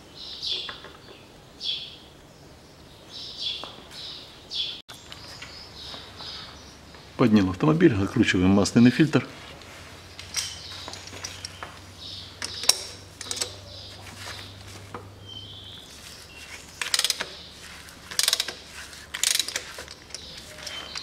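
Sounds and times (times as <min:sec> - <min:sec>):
ratchet wrench clicking: 0:12.4 - 0:13.7, 0:16.8 - 0:17.4, 0:18.1 - 0:21.0.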